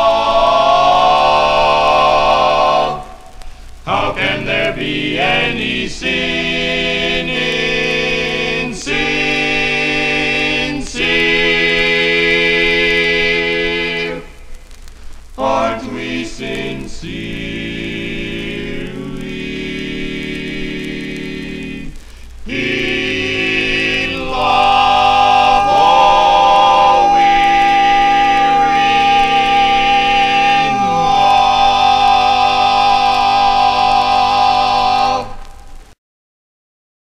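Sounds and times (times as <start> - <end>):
men singing in close harmony: 0.0 - 14.4, 15.4 - 35.6
high voice holding note: 25.2 - 31.8.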